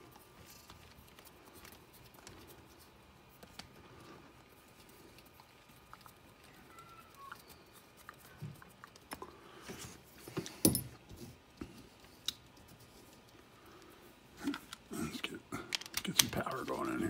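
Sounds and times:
clicks and knocks of tools and parts: 0:15.7 - 0:16.4.

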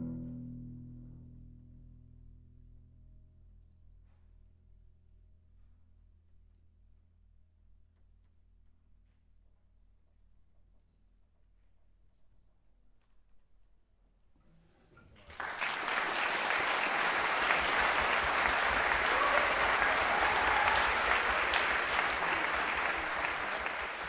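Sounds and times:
audience applause: 0:15.3 - 0:24.0.

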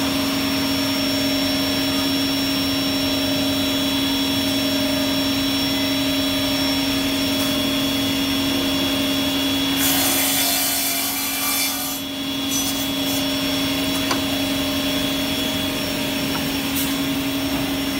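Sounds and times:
saw motor hum and whine: 0:00.0 - 0:17.9
circular blades sawing boards: 0:09.5 - 0:17.9.

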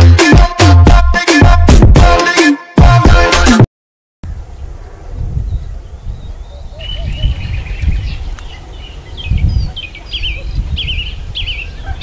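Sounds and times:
birds chirping: 0:04.3 - 0:12.0.

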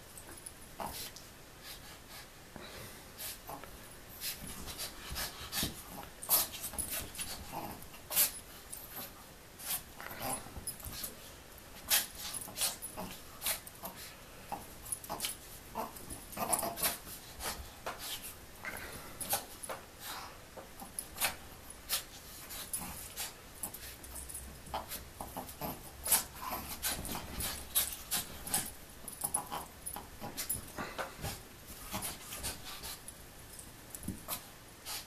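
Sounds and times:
dog breathing and vocal noises: 0:00.8 - 0:35.0
animals scuffling on couch: 0:21.0 - 0:35.0.

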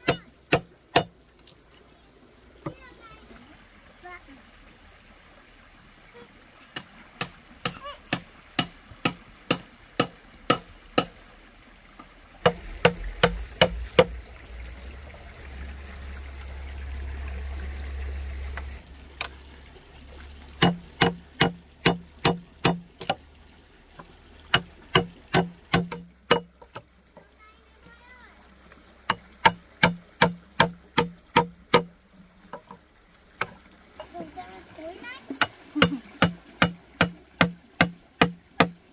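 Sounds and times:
water trickling and pouring: 0:00.0 - 0:38.9
hand tool knocking wood: 0:20.6 - 0:23.2, 0:24.6 - 0:26.8, 0:29.1 - 0:31.9, 0:35.4 - 0:38.8.

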